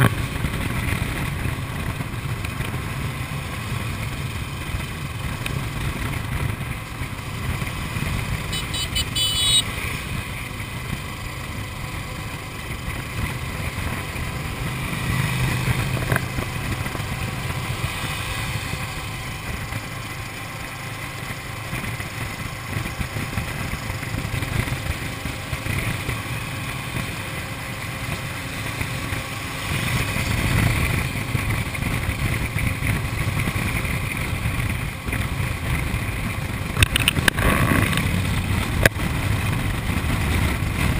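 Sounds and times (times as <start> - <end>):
motorcycle engine cruising: 0.0 - 40.9
wind noise on microphone: 29.6 - 40.9.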